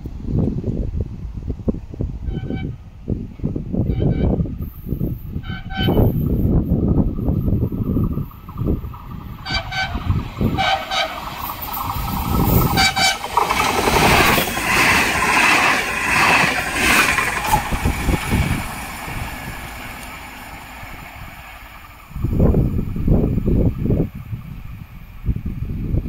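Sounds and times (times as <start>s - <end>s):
train horn blasts: 2.2s - 2.8s, 3.9s - 4.4s, 5.4s - 6.2s, 9.4s - 11.4s, 12.8s - 13.2s
train wheels rolling past: 4.6s - 25.6s.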